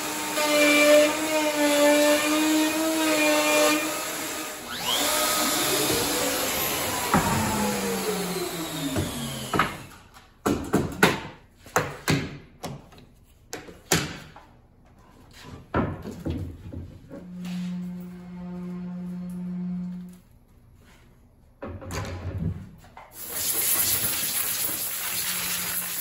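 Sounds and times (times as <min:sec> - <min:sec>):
router running and spinning down: 0:02.3 - 0:10.0.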